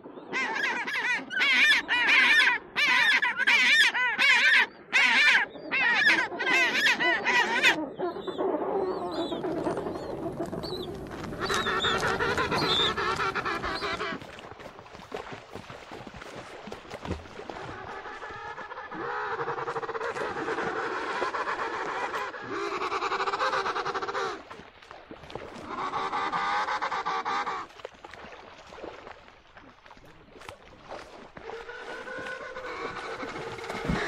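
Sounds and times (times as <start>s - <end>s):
penguins calling: 9.4s - 14.2s.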